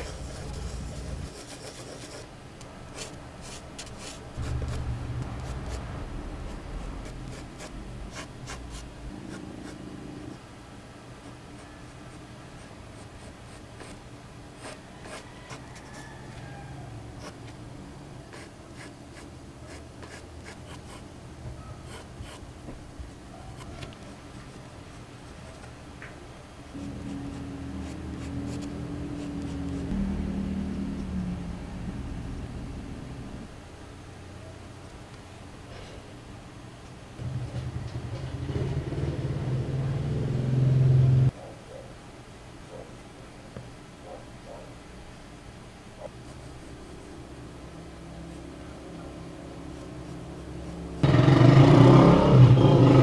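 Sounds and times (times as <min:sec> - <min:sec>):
pencil scratching on paper: 0:00.0 - 0:02.3, 0:06.5 - 0:09.9, 0:14.6 - 0:15.6, 0:18.3 - 0:21.0, 0:21.8 - 0:22.4, 0:26.8 - 0:30.0.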